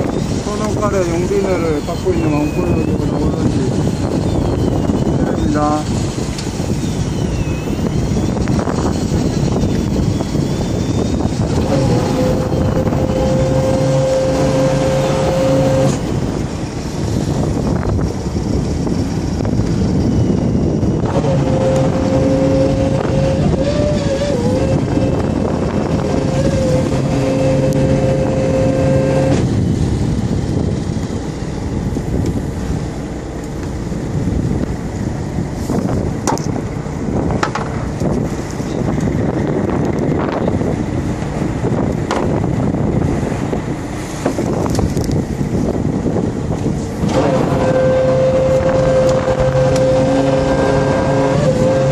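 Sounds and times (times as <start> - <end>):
boat rumble: 0.0 - 51.9
wind: 0.0 - 51.9
electric fishing reel motor whining: 2.4 - 16.0.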